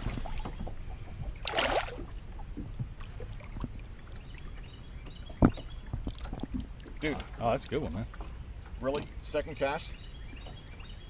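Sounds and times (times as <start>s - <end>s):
wind and water noise: 0.0s - 11.0s
fish splash: 1.4s - 2.1s.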